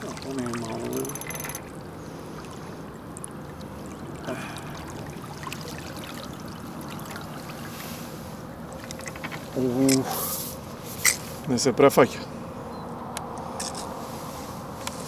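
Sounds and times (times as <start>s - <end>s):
water splashing and rippling: 0.0s - 11.5s.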